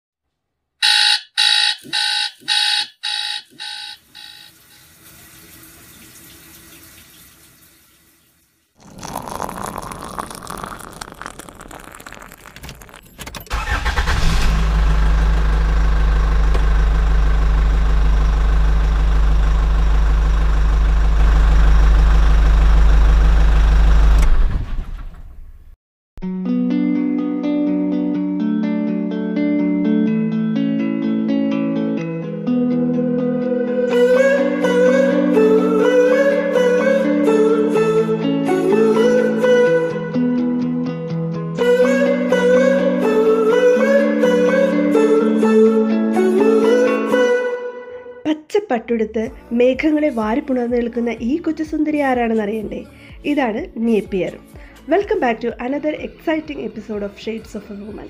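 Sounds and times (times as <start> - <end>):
digital alarm clock beeping: 0.8 - 4.6
coffee pouring into a cup: 8.8 - 13.2
car engine running: 12.6 - 24.4.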